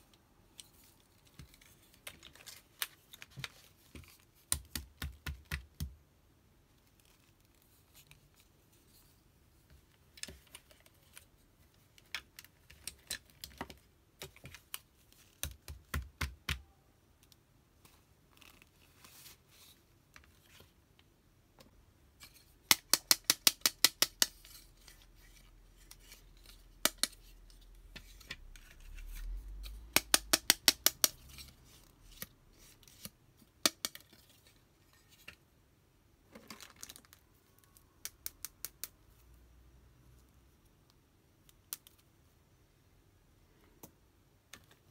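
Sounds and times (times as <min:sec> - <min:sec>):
plastic toys clicking and tapping: 0:22.6 - 0:24.6, 0:26.8 - 0:27.3, 0:29.8 - 0:31.4, 0:33.6 - 0:34.3.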